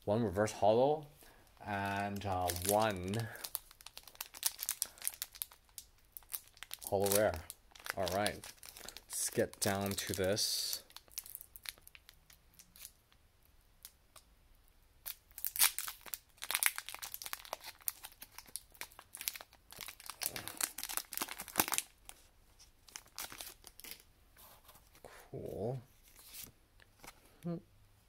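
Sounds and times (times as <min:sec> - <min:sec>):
foil wrapper crinkling and tearing: 0:01.8 - 0:13.0, 0:15.0 - 0:24.0.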